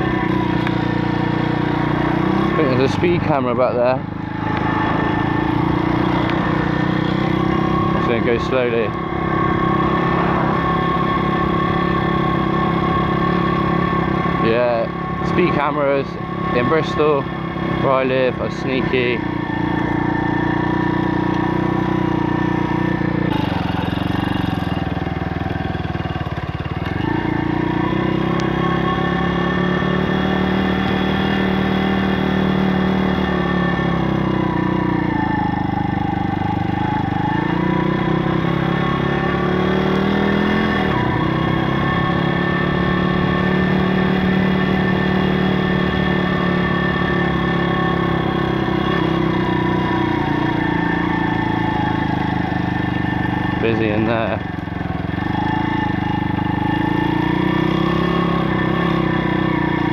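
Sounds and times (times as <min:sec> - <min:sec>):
motorbike engine revving: 0:00.0 - 0:59.9.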